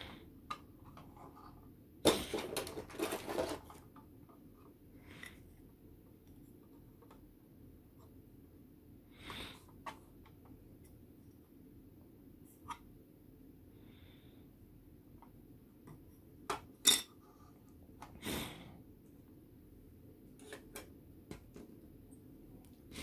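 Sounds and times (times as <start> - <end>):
plastic parts clattering: 2.0 - 4.0
plastic rustle: 2.1 - 3.8.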